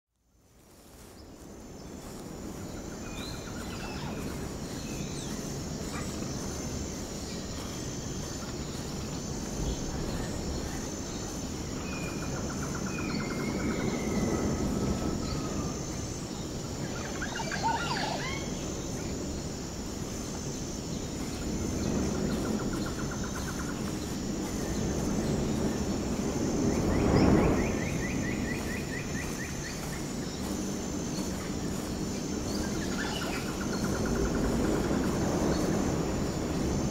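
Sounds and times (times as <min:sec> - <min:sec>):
small birds chirping: 0:00.7 - 0:14.4, 0:27.0 - 0:35.9
steady low rumble: 0:18.4 - 0:36.9.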